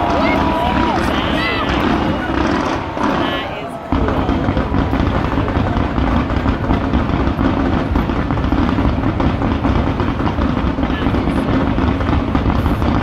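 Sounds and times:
fireworks barrage rumble: 0:00.0 - 0:13.0.

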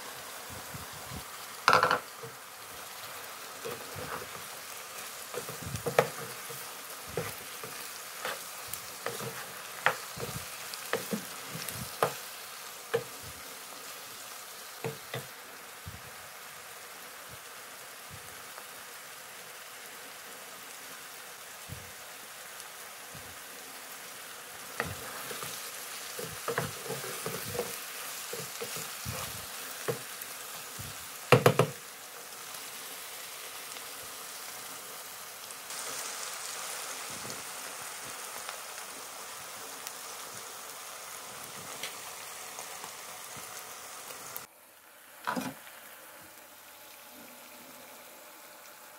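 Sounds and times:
vegetables sizzling in a pan: 0:00.0 - 0:48.9
spatula scraping a pan: 0:03.6 - 0:12.3, 0:24.7 - 0:30.2.

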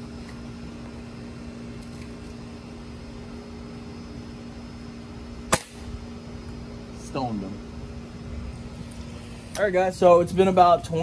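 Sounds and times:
steady mechanical hum: 0:00.0 - 0:11.0
air rifle shot: 0:05.5 - 0:05.9.

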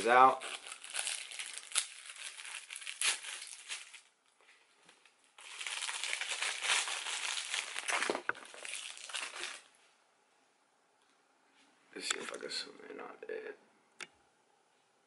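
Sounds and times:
plastic packaging crinkling: 0:00.0 - 0:04.1, 0:05.4 - 0:09.8.

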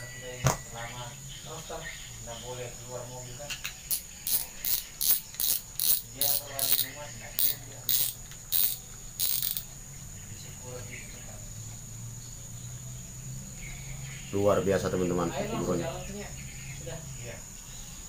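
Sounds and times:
fishing reel ratchet clicking: 0:03.9 - 0:09.7.

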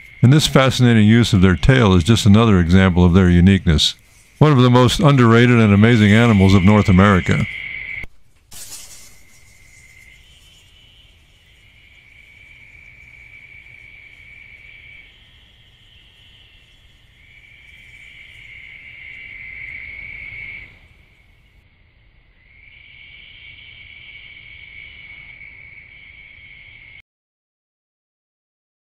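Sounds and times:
animal high steady trill: 0:00.0 - 0:21.6.

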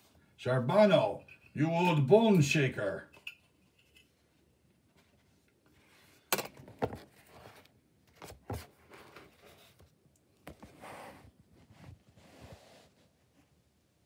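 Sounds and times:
book handling knocks and rubs: 0:06.6 - 0:12.9.

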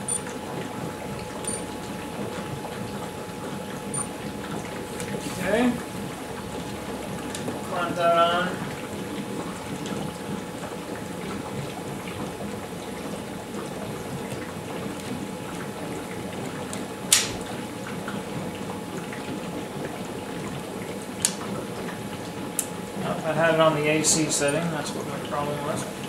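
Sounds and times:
electrolysis cell bubbling and fizzing: 0:00.0 - 0:26.0
faint steady hum: 0:00.0 - 0:26.0
sharp click: 0:17.1 - 0:17.4.

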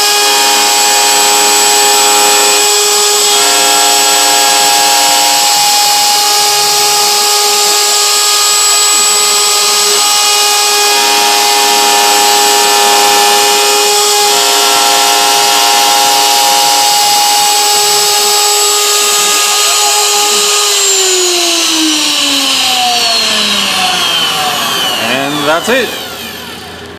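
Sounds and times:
router spindle whine cutting wood: 0:00.0 - 0:26.9.

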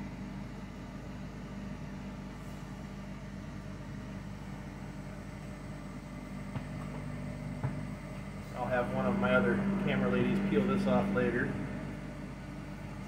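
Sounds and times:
spin dryer humming: 0:03.0 - 0:13.0.

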